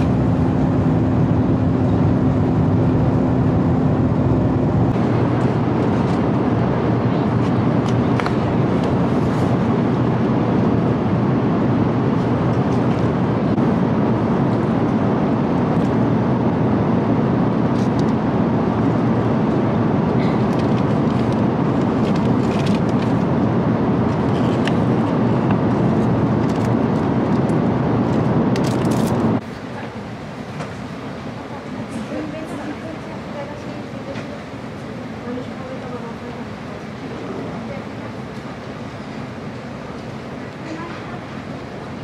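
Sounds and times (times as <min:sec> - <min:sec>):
airliner cabin engine drone: 0:00.0 - 0:42.0.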